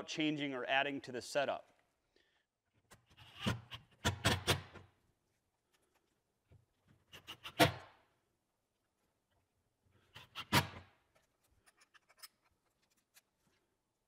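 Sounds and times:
parts and tools clicking: 11.1s - 13.6s.

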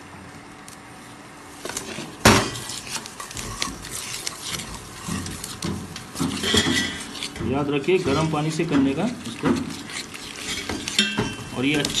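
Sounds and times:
metal spoon clanking on steel bowl: 2.4s - 12.0s.

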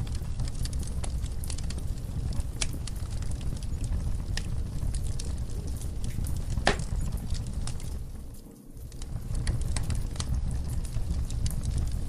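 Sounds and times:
logs crackling in fireplace: 0.0s - 12.0s.

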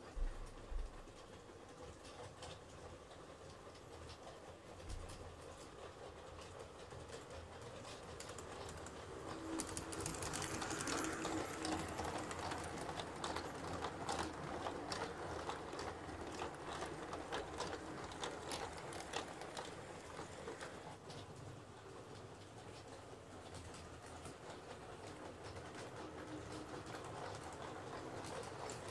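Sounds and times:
wheels clicking over rail joints: 1.1s - 28.9s
model train motor hum: 7.2s - 21.1s.

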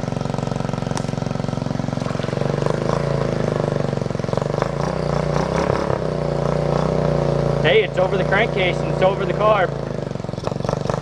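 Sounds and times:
quad engine running: 0.0s - 11.0s
water splashing: 1.9s - 3.6s.

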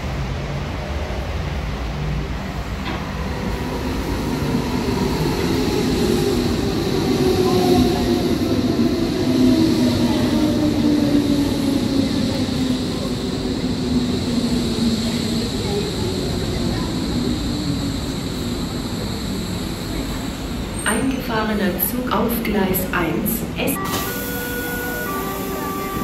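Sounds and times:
electric train arriving: 0.0s - 26.0s
train whine falling in pitch: 23.8s - 26.0s.

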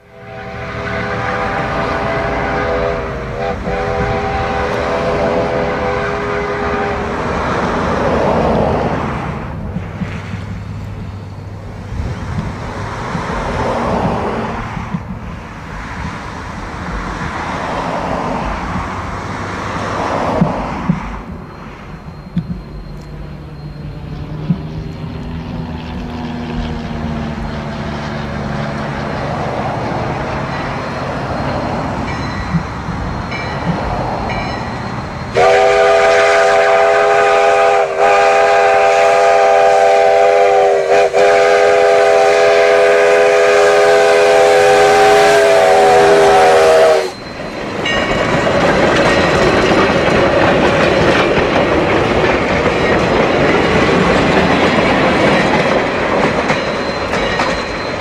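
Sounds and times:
steam whistle chord: 0.0s - 7.2s, 35.3s - 47.3s
steam locomotive rumble: 0.0s - 58.0s
train wheels clattering on rails: 7.1s - 58.0s.

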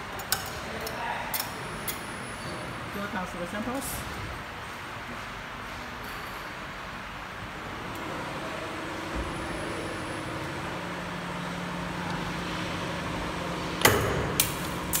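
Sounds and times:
spring forming machine humming: 7.2s - 15.0s.

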